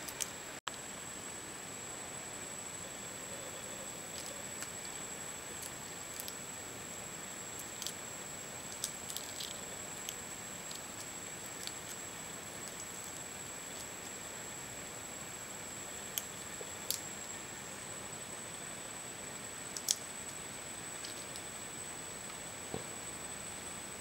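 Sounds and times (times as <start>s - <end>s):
steady hiss: 0.0s - 24.0s
thin high whine: 0.0s - 24.0s
prawn shells clicking and snapping: 4.1s - 6.5s, 7.5s - 8.0s, 8.6s - 14.2s, 16.0s - 17.1s, 19.7s - 20.4s, 21.0s - 21.5s.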